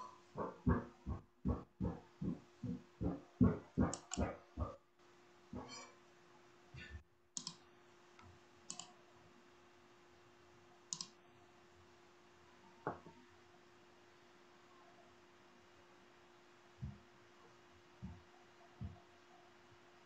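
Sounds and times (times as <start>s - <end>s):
faint steady hum: 0.0s - 20.0s
short clicks and soft knocks: 3.8s - 4.3s.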